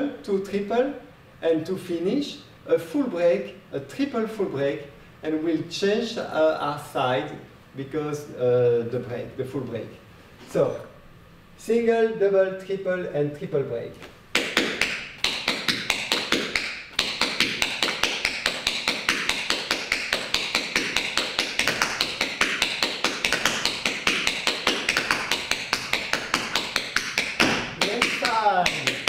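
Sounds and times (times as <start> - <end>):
tap shoes striking floor: 14.0 - 29.0.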